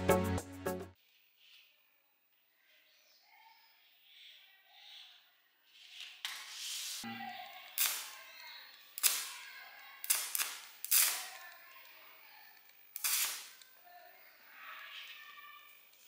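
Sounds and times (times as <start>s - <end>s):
electric arc snapping and sizzling: 7.6s - 11.9s, 12.5s - 13.8s.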